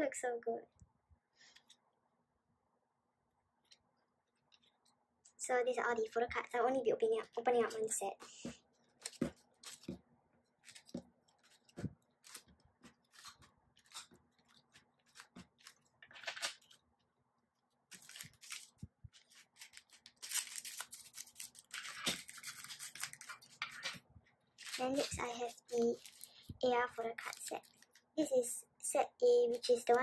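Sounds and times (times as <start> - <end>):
photo cards tapping and sliding: 7.6 - 10.0, 10.6 - 16.8
card stack scraping rustle: 7.7 - 10.0, 10.6 - 16.8, 17.9 - 24.0.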